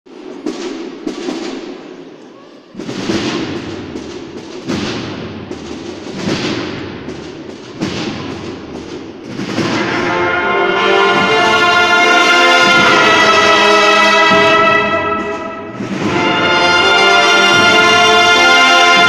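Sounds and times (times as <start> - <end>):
drum hits echoing in church: 0.1 - 19.0.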